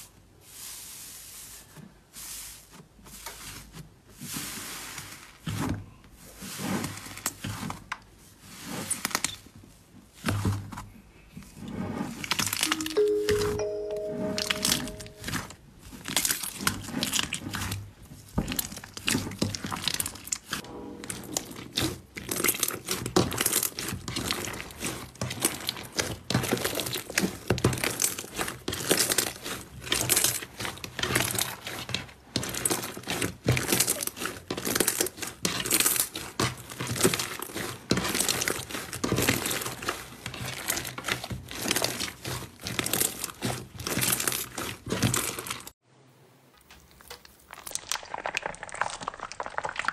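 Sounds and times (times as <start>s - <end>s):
slime crackling: 21.4s - 45.7s, 46.8s - 49.9s.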